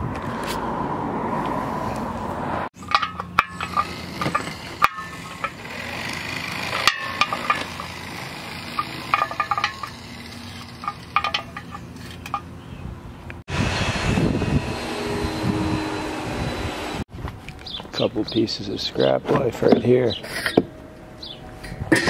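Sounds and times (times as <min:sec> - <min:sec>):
wrench clinking on nuts: 0:02.8 - 0:12.5.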